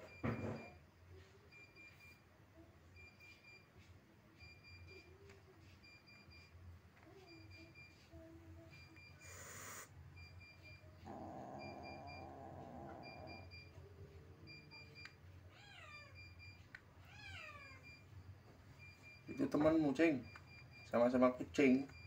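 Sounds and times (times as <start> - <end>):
faint electronic beeps: 0.0 - 9.4, 10.1 - 22.0
cat hissing: 9.2 - 10.0
cat crying low and rough: 11.0 - 13.8, 15.5 - 16.4, 17.0 - 17.9
cat meowing: 11.1 - 13.5, 15.5 - 16.4, 17.0 - 17.8.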